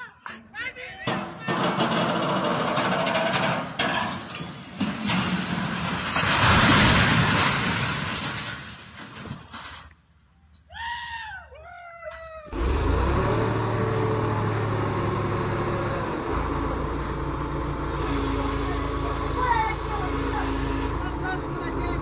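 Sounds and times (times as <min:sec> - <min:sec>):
metal structure clattering: 0:00.2 - 0:10.0
crane crashing to the ground: 0:01.1 - 0:09.9.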